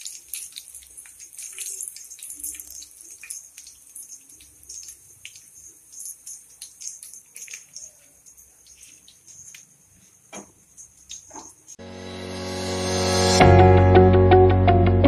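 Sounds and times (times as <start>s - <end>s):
frying oil sizzling and crackling: 0.0s - 13.4s.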